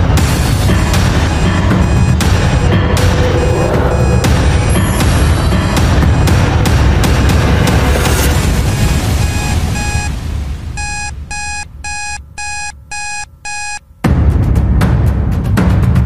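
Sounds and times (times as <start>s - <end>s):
background music: 0.0s - 16.0s
digital timer alarm beeping: 0.7s - 6.6s, 8.2s - 10.2s, 10.8s - 13.8s.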